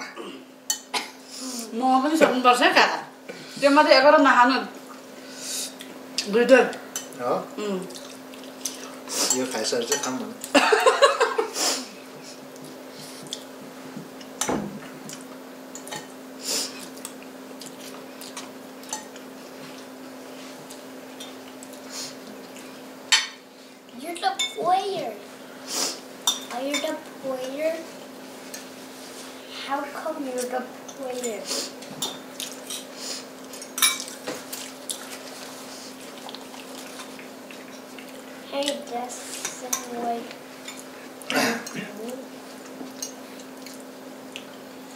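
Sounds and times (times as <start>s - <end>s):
wet chewing: 7.9s - 9.0s, 33.4s - 38.3s, 42.6s - 44.6s.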